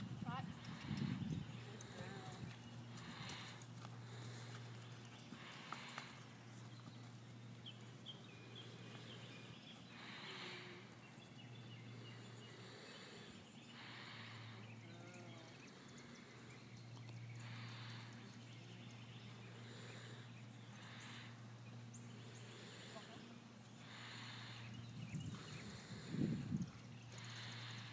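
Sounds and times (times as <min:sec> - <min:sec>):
low steady hum: 0:00.0 - 0:27.9.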